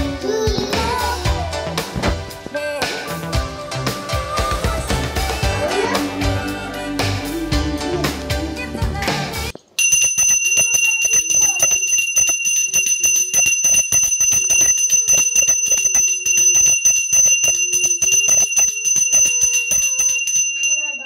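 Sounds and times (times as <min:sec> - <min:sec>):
hand bell rung rapidly: 0:09.8 - 0:21.0.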